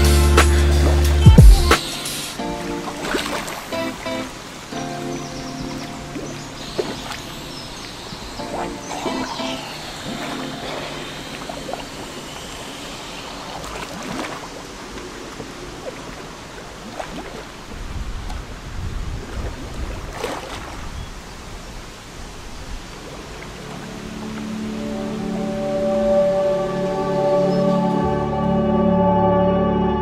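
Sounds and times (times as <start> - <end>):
water splashing and lapping: 0.0 - 27.2
wind rumble on microphone: 17.0 - 25.0.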